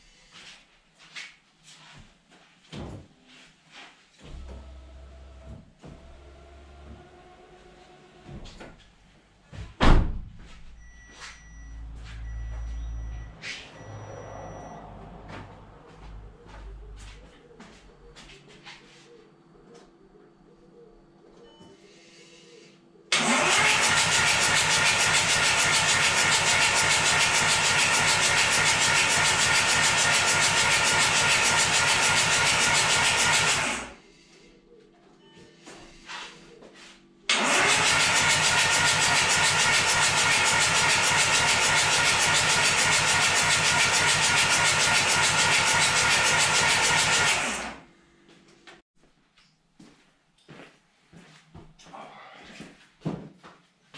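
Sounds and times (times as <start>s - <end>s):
starter motor cranking engine: 23.1s - 34.0s, 37.3s - 47.8s.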